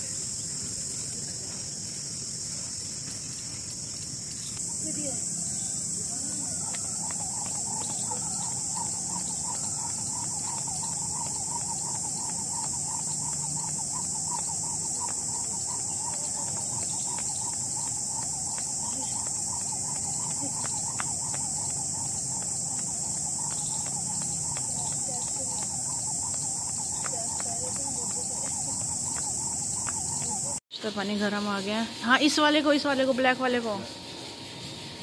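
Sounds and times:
fast insect chirping: 0:00.0 - 0:35.0
insect buzz in trees: 0:00.0 - 0:35.0
skipping rope tapping path: 0:06.0 - 0:30.6.

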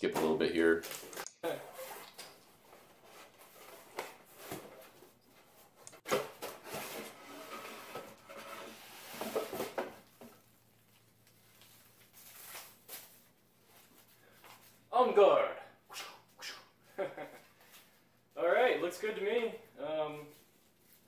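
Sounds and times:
cardboard rustling and scraping: 0:02.7 - 0:10.4.

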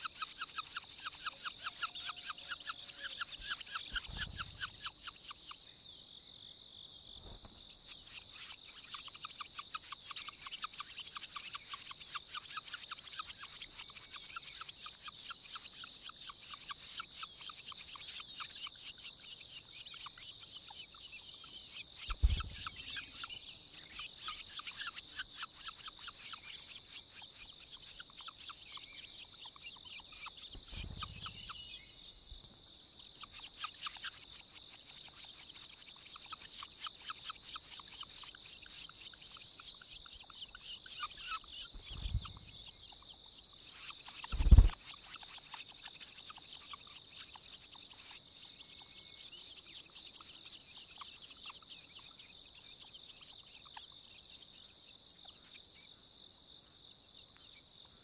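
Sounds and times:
nestlings chirping rapidly: 0:00.0 - 0:05.6, 0:07.2 - 0:53.9
low thumps: 0:22.1 - 0:22.8.

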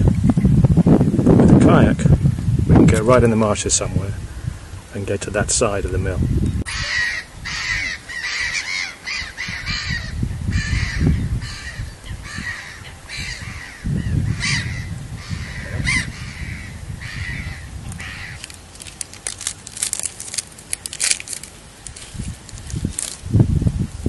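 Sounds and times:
crows cawing: 0:06.7 - 0:18.6
rustling clicks: 0:17.9 - 0:23.2.

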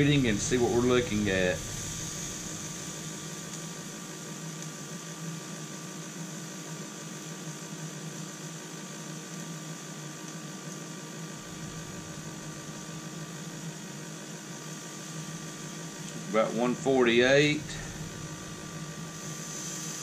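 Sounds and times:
faint low hum: 0:00.0 - 0:05.0, 0:15.0 - 0:20.0
grill fan whirring: 0:00.0 - 0:20.0.

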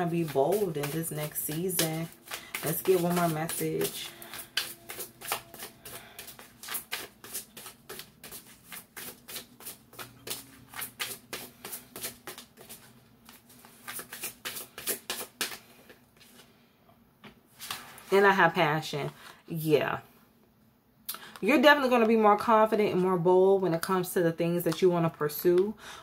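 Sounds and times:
cards being shuffled by hand: 0:00.0 - 0:16.4.

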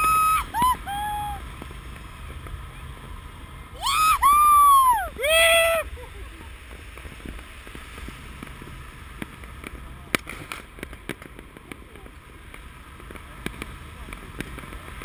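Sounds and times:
wind on microphone: 0:00.0 - 0:01.7
distant fireworks banging: 0:06.5 - 0:15.0.

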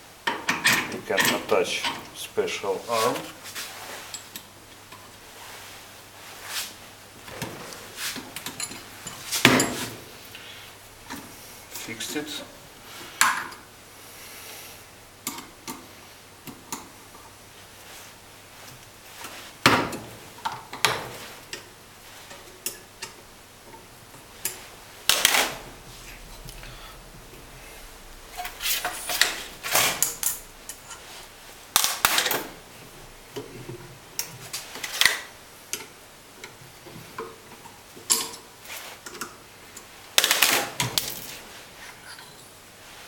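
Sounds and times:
metal tools clinking and knocking: 0:28.4 - 0:31.1.

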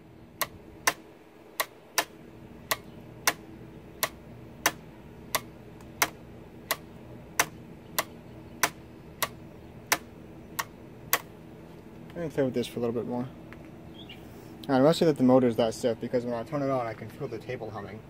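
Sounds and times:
faint steady hum: 0:00.0 - 0:18.0
calculator mechanism clicking: 0:01.6 - 0:11.3.

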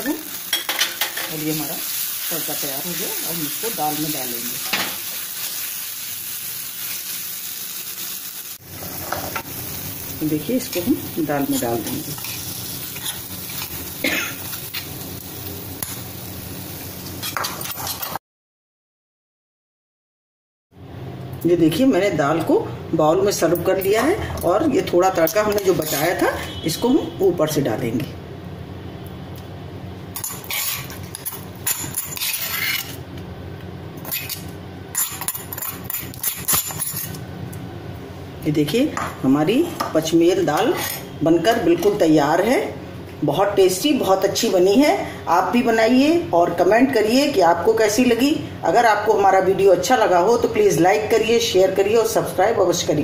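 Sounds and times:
hot oil sizzling: 0:00.0 - 0:18.2, 0:24.8 - 0:27.5, 0:29.9 - 0:33.1, 0:34.0 - 0:37.3
metal spoon scraping a pan: 0:11.6 - 0:13.8, 0:17.2 - 0:18.2, 0:25.2 - 0:26.6, 0:30.2 - 0:33.0, 0:34.0 - 0:37.2, 0:40.6 - 0:41.2.

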